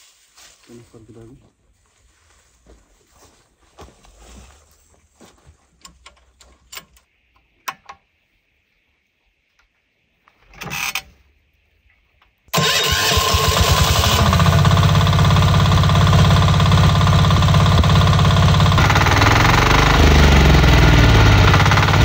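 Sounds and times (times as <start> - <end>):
engine chugging: 12.6 - 22.0.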